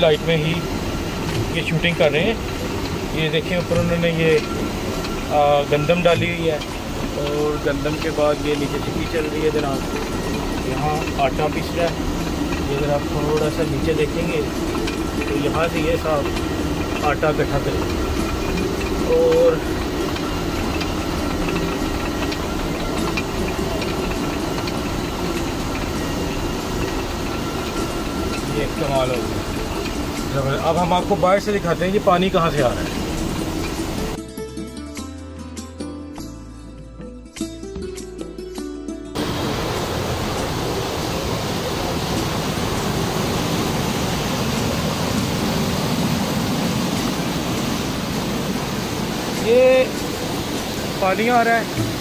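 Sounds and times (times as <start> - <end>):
light irregular ticking: 0.0 - 34.2
water rushing: 0.0 - 34.2, 39.2 - 52.0.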